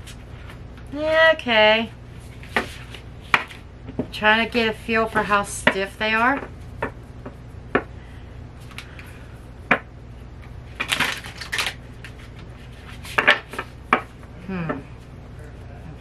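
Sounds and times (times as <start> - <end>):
cards riffling: 10.7 - 12.4
cards snapping and clacking: 10.8 - 12.2.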